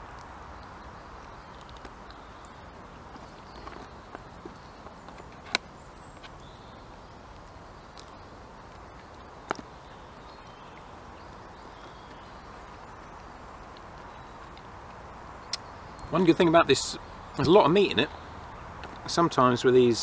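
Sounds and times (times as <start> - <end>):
faint outdoor hiss: 0.0 - 20.0.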